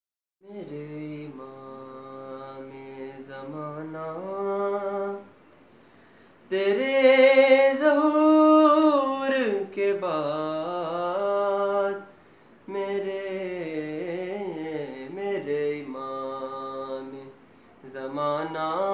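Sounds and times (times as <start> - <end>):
man singing unaccompanied: 0.4 - 5.5, 6.5 - 18.9.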